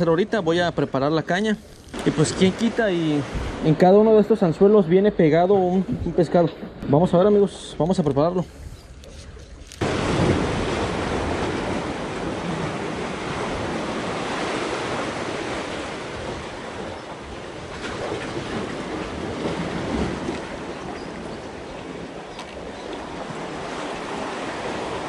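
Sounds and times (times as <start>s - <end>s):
sea surf washing among blocks: 0.0s - 4.3s, 9.6s - 25.0s
wind on microphone: 1.7s - 3.8s.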